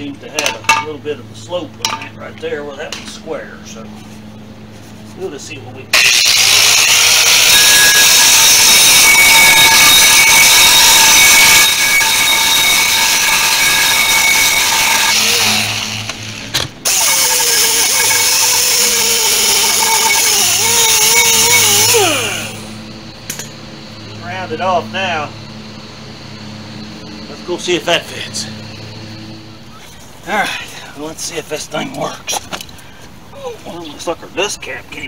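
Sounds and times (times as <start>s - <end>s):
angle grinder grinding steel: 5.9s - 22.9s.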